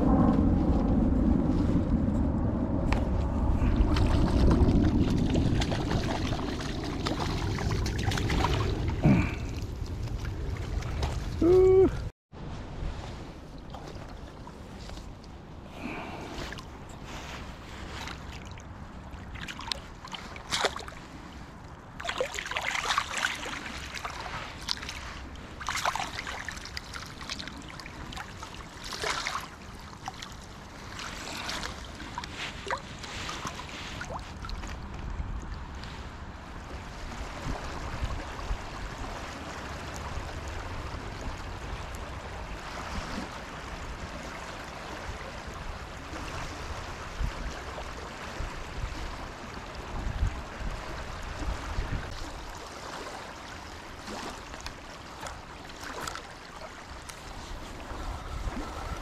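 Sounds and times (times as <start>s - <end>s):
running water with low rumble: 0.0s - 59.0s
water splashing: 3.6s - 12.1s, 13.5s - 36.0s, 51.4s - 59.0s.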